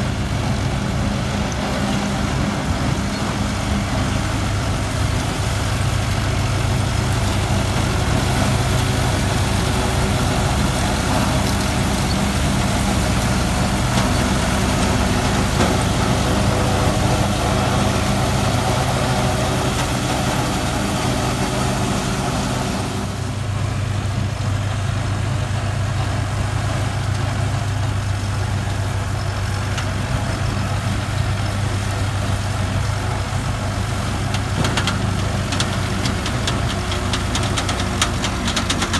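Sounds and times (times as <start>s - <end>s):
straw chopper rushing hiss: 0.0s - 24.1s
diesel engine droning: 0.0s - 38.9s.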